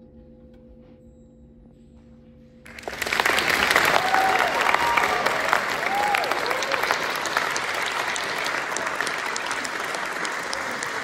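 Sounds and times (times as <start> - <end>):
audience applauding: 2.7 - 11.0
audience cheering: 2.7 - 11.0.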